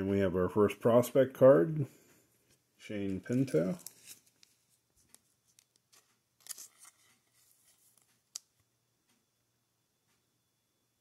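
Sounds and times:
plastic sleeve rustling: 3.0s - 8.5s
plastic crinkle: 3.2s - 8.5s.

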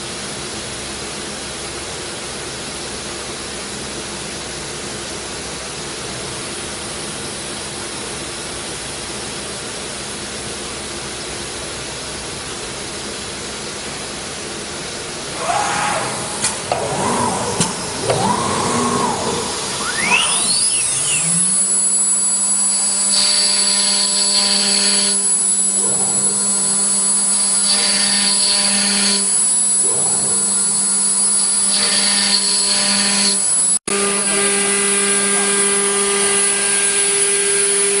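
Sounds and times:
router spindle whine: 15.3s - 38.0s.

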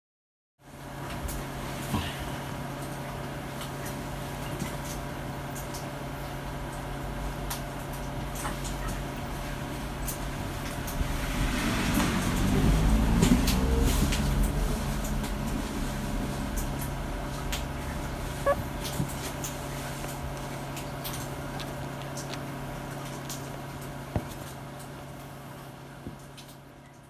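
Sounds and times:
low room hum: 0.6s - 27.0s
puppies rustling on bedding: 13.2s - 26.4s.

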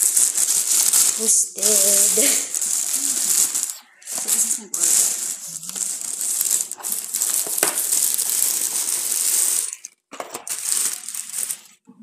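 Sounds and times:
plastic bag rustling: 0.0s - 11.9s.

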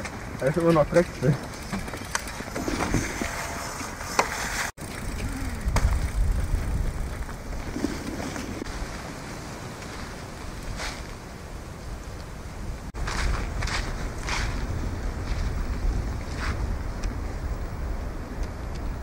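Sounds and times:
bike rolling over gravel: 0.0s - 11.3s.

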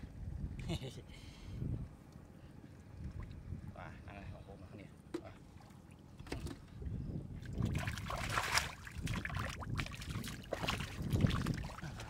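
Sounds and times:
hands splashing in muddy water: 7.6s - 12.0s.

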